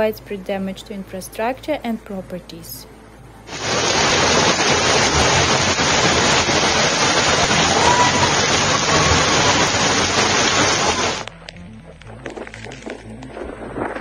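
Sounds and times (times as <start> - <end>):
floodwater rushing: 3.5 - 11.3
heavy rain: 3.5 - 11.3.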